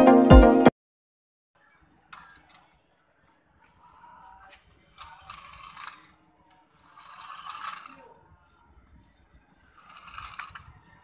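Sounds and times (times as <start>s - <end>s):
toy motors whirring and rattling: 3.8s - 8.6s, 9.7s - 10.8s.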